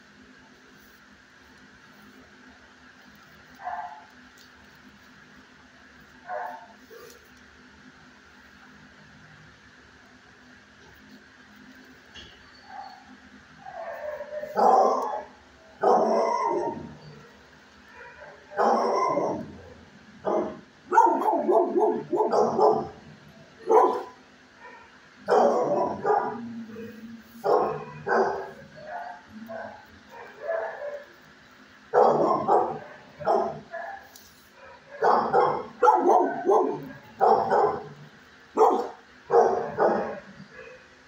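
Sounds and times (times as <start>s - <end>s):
faint steady hum: 0.0s - 41.0s
dogs barking: 3.5s - 4.4s, 6.1s - 7.3s, 12.6s - 41.0s.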